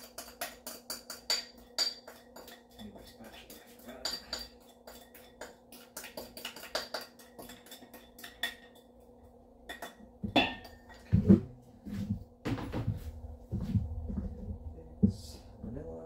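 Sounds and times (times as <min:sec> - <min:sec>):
metal kitchenware clinking: 0:00.0 - 0:08.9, 0:09.7 - 0:11.0
steady low hum: 0:00.0 - 0:16.0
heavy thumps: 0:10.2 - 0:15.8.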